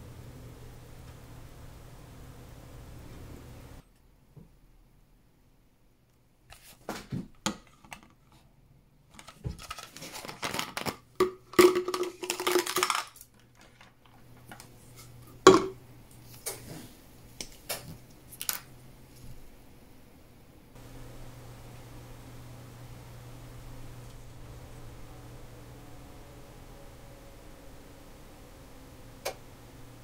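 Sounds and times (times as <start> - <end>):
plastic scraping and rasping: 9.1 - 11.0
plastic parts clicking: 9.1 - 14.7.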